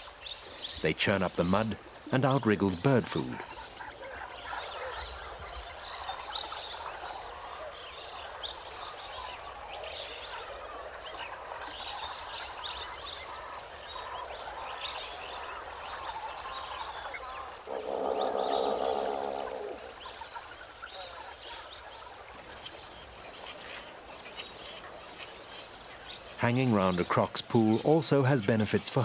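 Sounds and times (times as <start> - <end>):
birds chirping and squawking: 11.1 - 22.0
low drawn-out bird call: 15.4 - 21.6.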